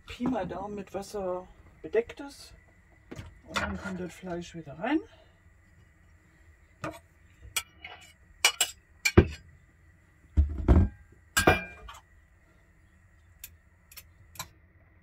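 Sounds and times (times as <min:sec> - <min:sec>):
crockery clinking: 0:11.4 - 0:11.9.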